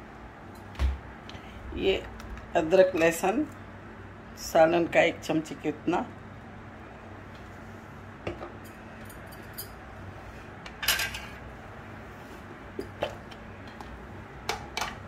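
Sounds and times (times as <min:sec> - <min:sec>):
faint steady hum: 0:00.0 - 0:15.0
metal kitchen utensils clinking: 0:10.8 - 0:11.4.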